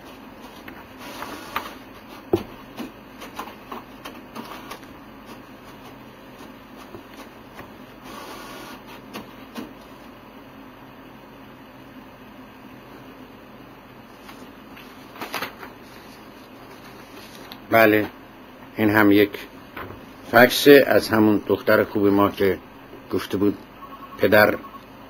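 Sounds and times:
steady low hum: 0.0s - 25.0s
papers rustling: 14.1s - 18.1s.

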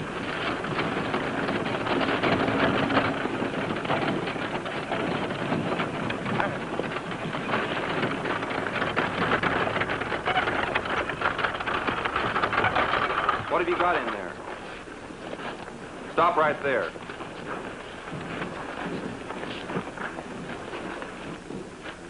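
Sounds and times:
bricks clattering and scraping: 5.5s - 14.4s.

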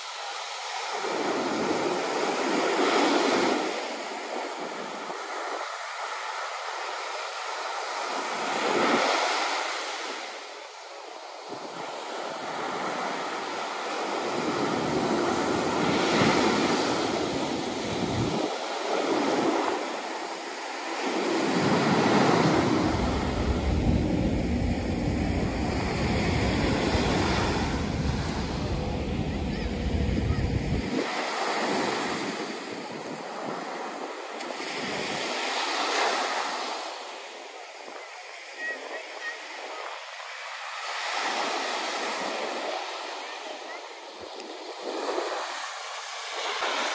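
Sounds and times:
waves washing up beach: 0.0s - 46.9s
wind buffeting microphone: 14.2s - 20.0s, 21.1s - 33.7s.

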